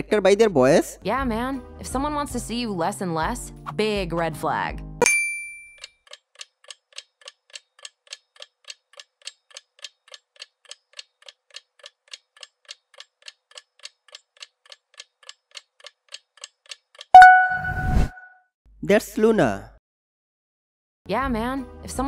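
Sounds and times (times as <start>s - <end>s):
clock ticking: 6.0s - 17.4s
short chime: 17.2s - 18.2s.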